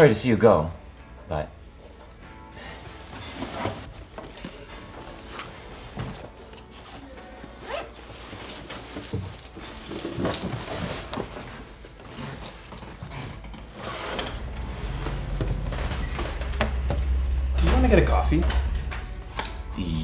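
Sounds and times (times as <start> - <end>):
backpack and clothing rustling: 2.6 - 17.8
zip: 6.9 - 8.7.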